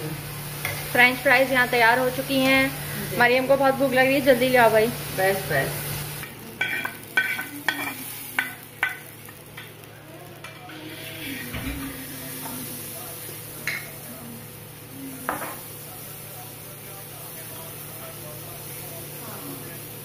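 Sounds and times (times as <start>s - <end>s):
frying oil sizzling: 0.0s - 20.0s
utensils clinking on cookware: 6.2s - 9.8s, 13.6s - 14.0s.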